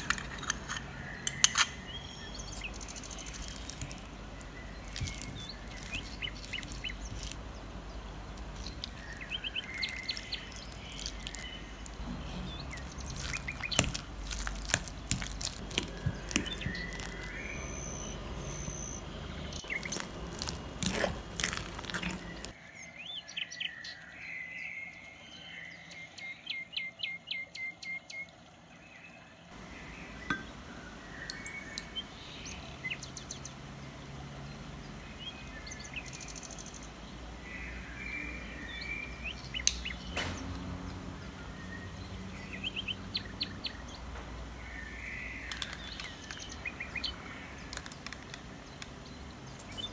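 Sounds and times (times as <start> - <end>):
fork scraping glass bowl: 0.0 - 1.8, 19.8 - 22.5
high chirping: 0.0 - 22.6.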